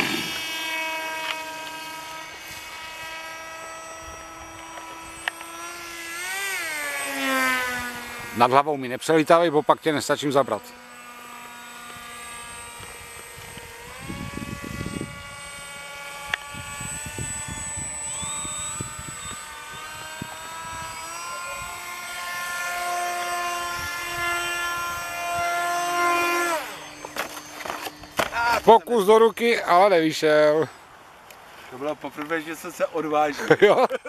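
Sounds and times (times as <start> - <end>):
model jet motor whining: 0.0 - 30.9
wind buffeting microphone: 12.8 - 22.0.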